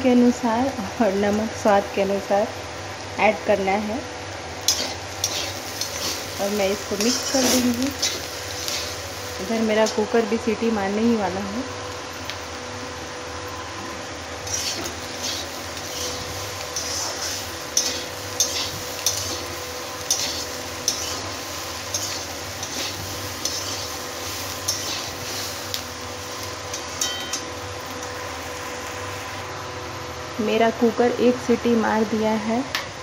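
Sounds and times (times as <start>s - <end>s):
light sizzle: 0.0s - 33.0s
metal spatula scraping a pan: 4.7s - 9.0s, 14.4s - 25.8s.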